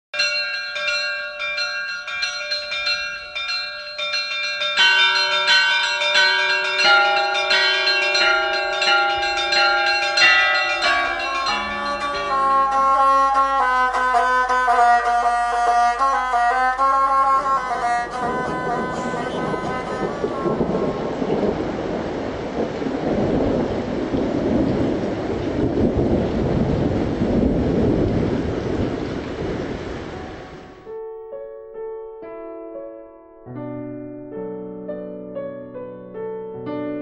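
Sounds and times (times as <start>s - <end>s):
rapid peal of bells: 0.2s - 21.0s.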